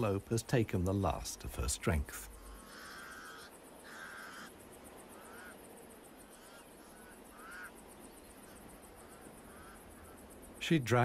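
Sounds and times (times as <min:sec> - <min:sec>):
crows calling harshly: 0:02.3 - 0:10.6.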